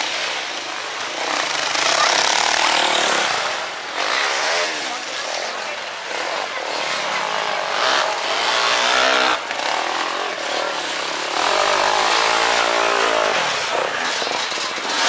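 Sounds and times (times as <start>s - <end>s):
dirt bike engines revving: 0.0s - 15.0s.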